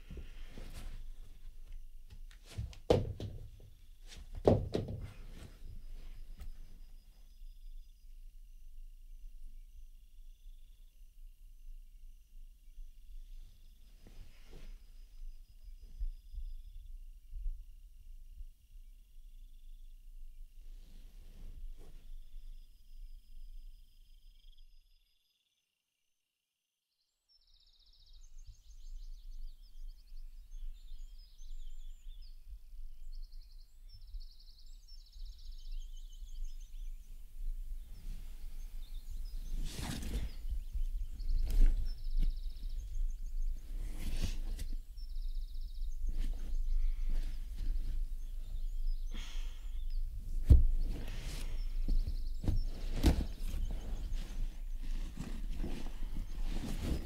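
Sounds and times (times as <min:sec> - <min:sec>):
soft thumps on sofa: 0:02.4 - 0:05.7
woman sighing breaths: 0:49.1 - 0:49.9.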